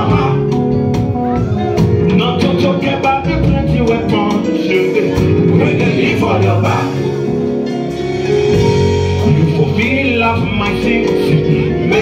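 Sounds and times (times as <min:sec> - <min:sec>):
amplified instrumental music: 0:00.0 - 0:12.0
male singer with backing vocals: 0:02.1 - 0:07.2, 0:09.3 - 0:12.0.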